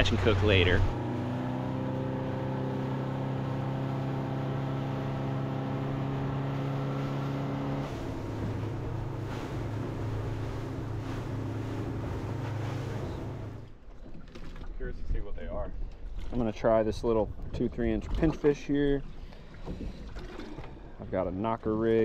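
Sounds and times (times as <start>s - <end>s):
boat engine running: 0.0s - 14.7s
rush of wind and water: 0.0s - 22.0s.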